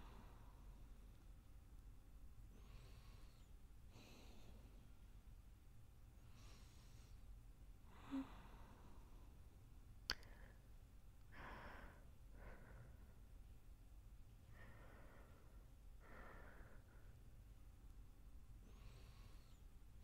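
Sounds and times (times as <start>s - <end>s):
faint slow breathing: 0.0s - 1.2s, 2.4s - 5.1s, 6.2s - 9.5s, 10.2s - 13.5s, 14.4s - 17.6s, 18.6s - 20.0s.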